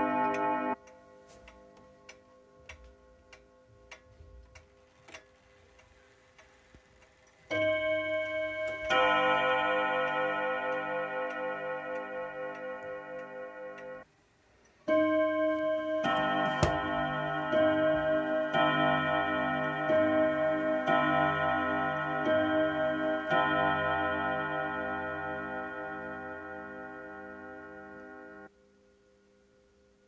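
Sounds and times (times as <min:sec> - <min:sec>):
clock gong chord: 0:00.0 - 0:01.1, 0:07.5 - 0:14.1, 0:14.9 - 0:28.5
clock ticking: 0:00.0 - 0:28.5.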